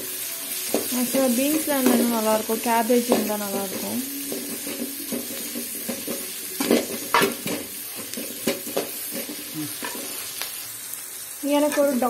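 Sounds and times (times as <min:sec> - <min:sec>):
vegetables sizzling in oil: 0:00.0 - 0:12.0
spoon knocking on pan: 0:03.0 - 0:10.0
metal spoon scraping a pan: 0:03.0 - 0:10.3.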